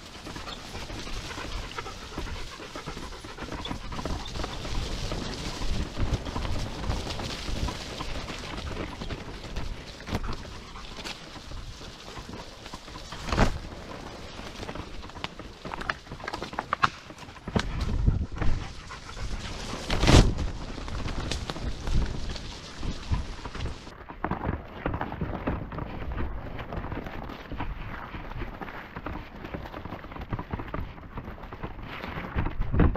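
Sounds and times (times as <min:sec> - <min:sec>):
mountainboard wheels rumbling: 0:00.0 - 0:32.9
heavy panting breath: 0:00.2 - 0:05.7, 0:17.1 - 0:20.0.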